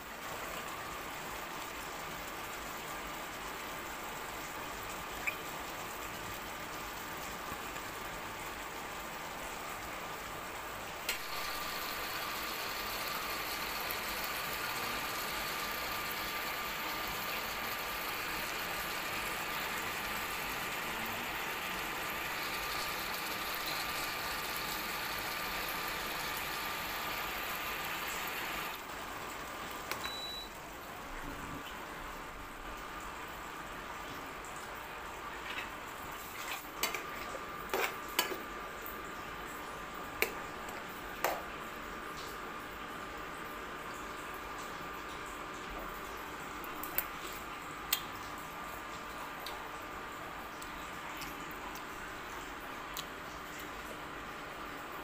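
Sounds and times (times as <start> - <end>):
sauce sizzling and bubbling in wok: 0.0 - 30.4, 32.8 - 43.1.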